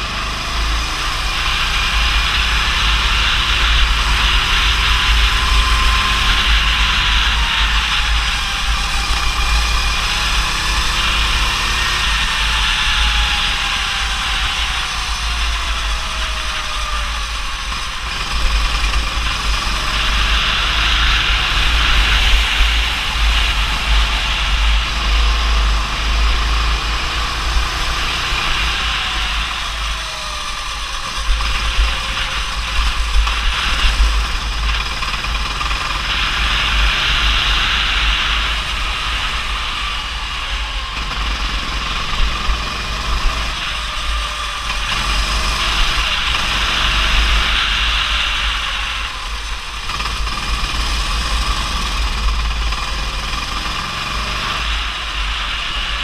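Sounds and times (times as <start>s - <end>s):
go-kart engine running: 0.0s - 56.0s.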